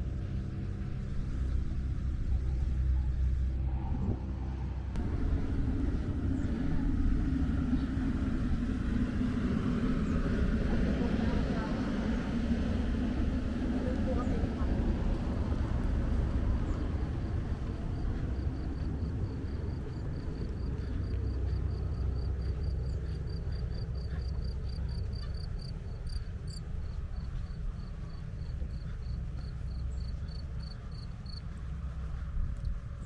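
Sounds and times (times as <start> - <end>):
steady low rumble: 0.0 - 33.0
cricket chirping: 15.0 - 32.8.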